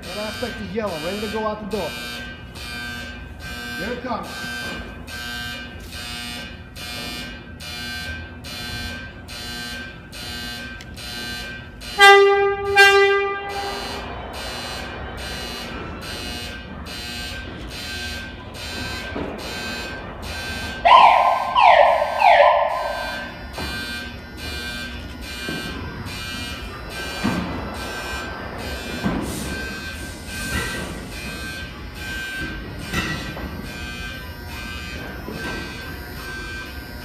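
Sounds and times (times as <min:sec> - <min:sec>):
pulsing warning alarm: 0:00.0 - 0:37.0
subway train pulling out: 0:00.0 - 0:37.0
train horn blasts: 0:11.1 - 0:15.8, 0:20.5 - 0:36.7.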